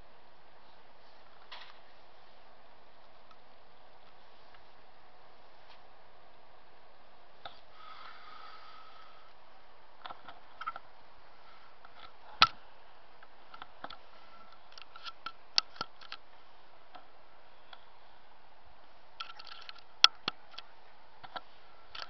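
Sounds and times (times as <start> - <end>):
faint hiss: 7.4 - 10.0.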